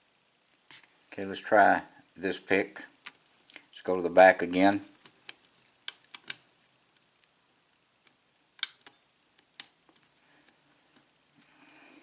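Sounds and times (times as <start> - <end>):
lock pick clicking: 5.0 - 6.4.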